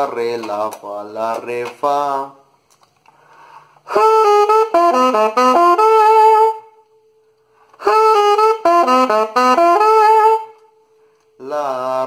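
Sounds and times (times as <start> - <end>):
alto saxophone playing: 3.8 - 6.9, 7.8 - 10.8.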